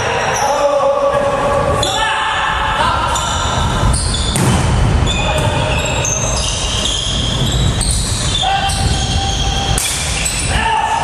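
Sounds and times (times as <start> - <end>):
low rumble of hall: 0.0 - 11.0
sneakers squeaking on court: 3.2 - 4.4, 5.0 - 10.5
volleyball being struck: 4.3 - 4.9.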